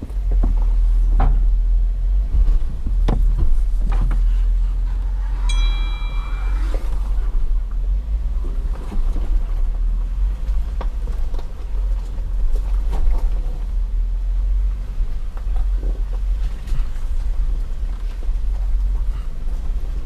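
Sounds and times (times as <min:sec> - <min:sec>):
off-road vehicle engine rumble: 0:00.0 - 0:20.0
sharp knocks over rough ground: 0:02.3 - 0:04.3.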